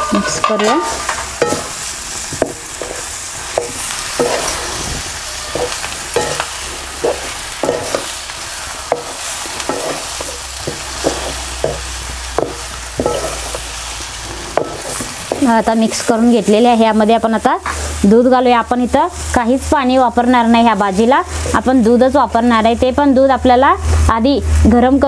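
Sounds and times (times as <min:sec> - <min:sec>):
wooden spatula scraping a pan: 0:00.0 - 0:08.2, 0:08.8 - 0:16.2
food sizzling in a pan: 0:00.0 - 0:25.0.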